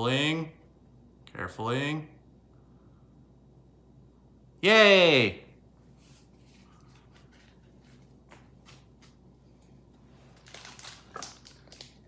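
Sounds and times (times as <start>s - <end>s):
trading cards clicking and rustling: 10.3s - 12.0s.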